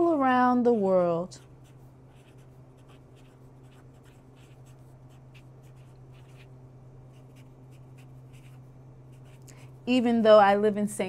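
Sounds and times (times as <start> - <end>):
steady low hum: 0.0 - 11.0
pen scratching on paper: 0.7 - 6.5, 7.1 - 9.4.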